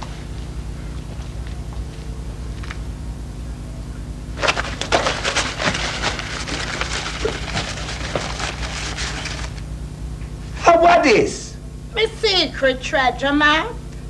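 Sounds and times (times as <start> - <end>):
paper crackling and rustling: 4.4 - 9.7.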